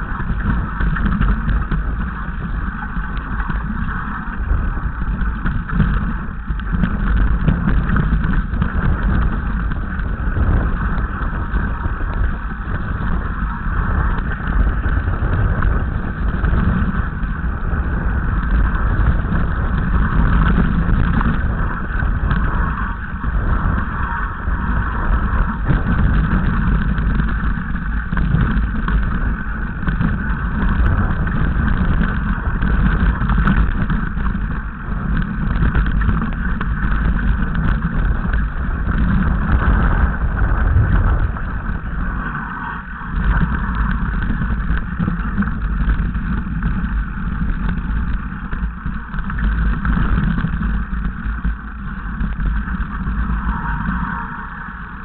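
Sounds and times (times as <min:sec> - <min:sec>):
bike rattling over stones: 0:00.0 - 0:55.0
wind rumble on microphone: 0:00.0 - 0:55.0.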